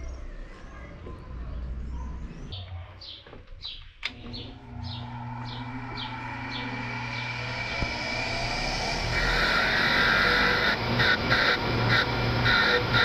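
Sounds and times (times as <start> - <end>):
bird chirping: 0.0 - 8.0
low steady hum: 4.0 - 13.0.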